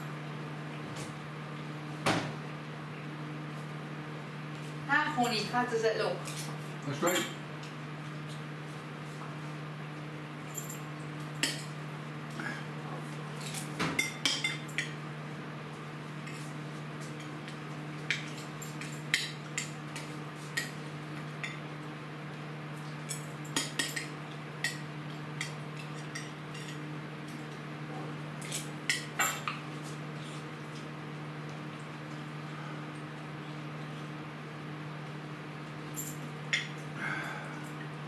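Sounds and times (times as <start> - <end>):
steady low hum: 0.0 - 38.0
dishes and utensils clinking: 28.6 - 29.6.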